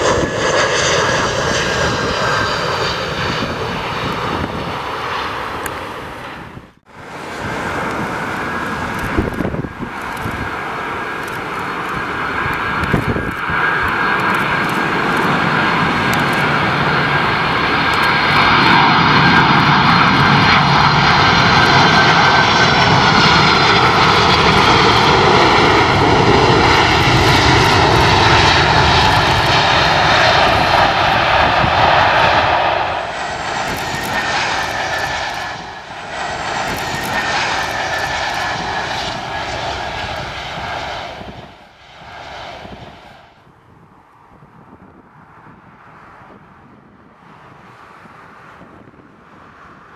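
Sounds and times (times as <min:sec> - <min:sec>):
jet engines whining: 0:00.0 - 0:43.6.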